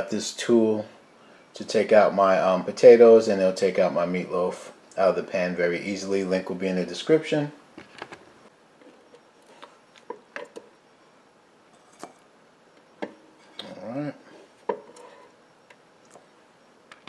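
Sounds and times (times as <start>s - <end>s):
spatula scraping cooking pot: 14.3s - 15.4s.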